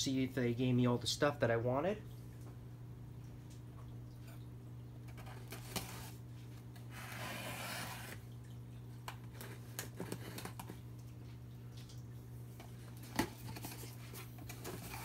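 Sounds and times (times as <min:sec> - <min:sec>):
steady low hum: 0:00.0 - 0:15.0
packing tape ripping off cardboard: 0:05.2 - 0:06.2, 0:06.9 - 0:08.2.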